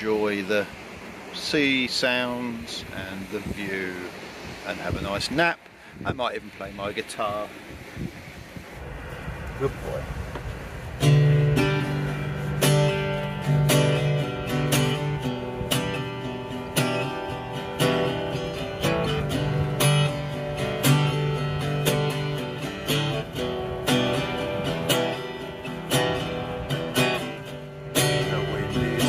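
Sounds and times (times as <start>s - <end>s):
acoustic guitar strumming: 10.7s - 29.0s.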